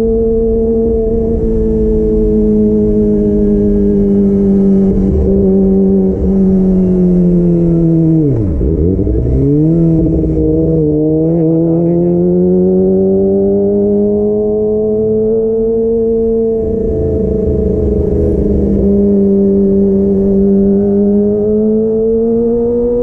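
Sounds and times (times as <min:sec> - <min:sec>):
motorcycle engine while riding: 0:00.0 - 0:23.0.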